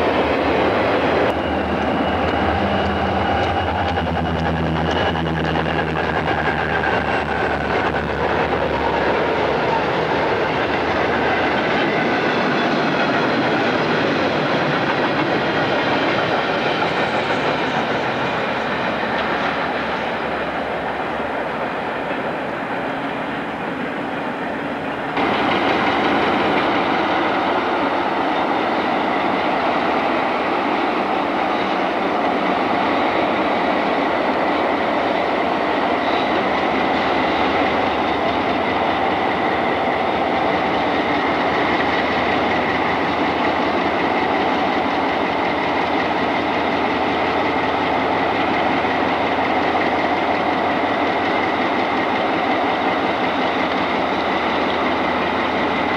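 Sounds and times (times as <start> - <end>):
diesel locomotive engines running: 0.0 - 55.9.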